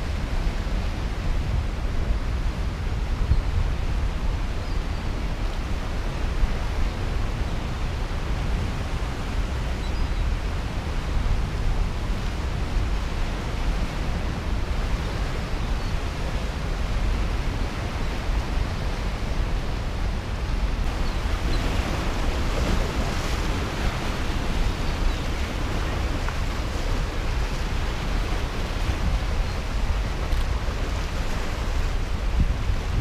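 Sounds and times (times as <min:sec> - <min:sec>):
wind buffeting microphone: 0:00.0 - 0:33.0
floodwater rushing: 0:16.5 - 0:33.0.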